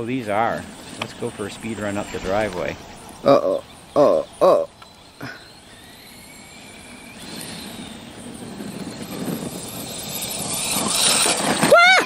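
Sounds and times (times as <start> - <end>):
electric motor whining: 0.0 - 12.0
tyres on gravel: 0.0 - 12.0.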